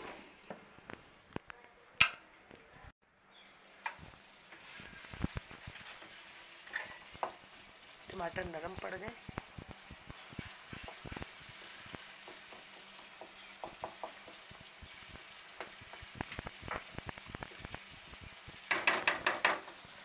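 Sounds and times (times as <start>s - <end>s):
sauce sizzling in oil: 3.3s - 20.0s
spatula scraping and tapping pan: 3.8s - 7.6s, 8.6s - 17.8s, 18.6s - 19.8s.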